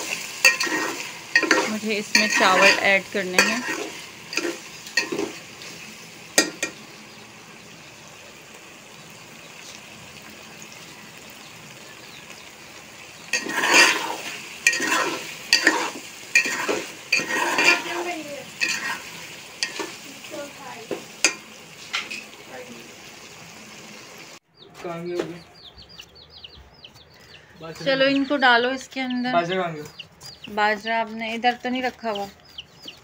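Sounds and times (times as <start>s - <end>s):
metal spoon scraping a pot: 0.0s - 6.8s, 13.3s - 20.0s
vegetables sizzling in oil: 0.0s - 24.4s.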